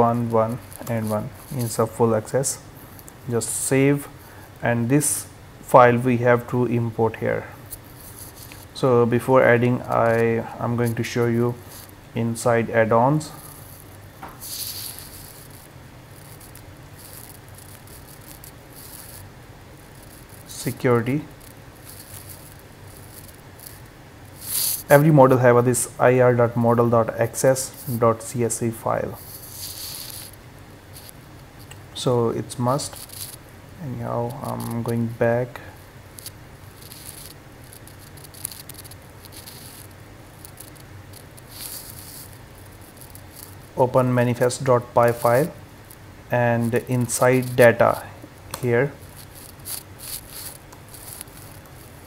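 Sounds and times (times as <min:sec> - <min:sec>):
low steady hum: 0:00.0 - 0:52.0
mouse scraping on desk: 0:14.4 - 0:19.3, 0:21.3 - 0:24.9, 0:29.2 - 0:30.4, 0:36.2 - 0:43.6, 0:49.0 - 0:52.0.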